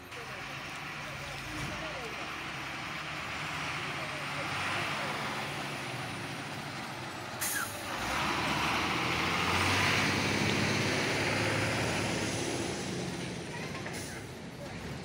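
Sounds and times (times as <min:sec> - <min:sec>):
truck engine pulling away: 0:00.0 - 0:15.0
air brake hiss: 0:07.4 - 0:07.8.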